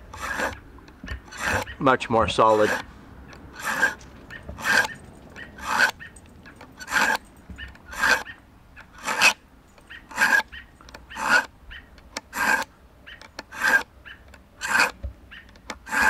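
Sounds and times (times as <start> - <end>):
knife scraping in sharpener: 0.0 - 2.9, 3.5 - 11.5, 12.2 - 12.7, 13.4 - 13.9, 14.6 - 15.0, 15.8 - 16.0.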